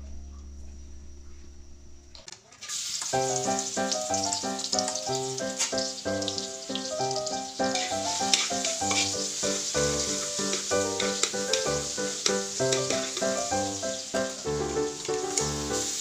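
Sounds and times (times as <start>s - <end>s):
garlic sizzling in oil: 2.6s - 16.0s
background music: 3.2s - 16.0s.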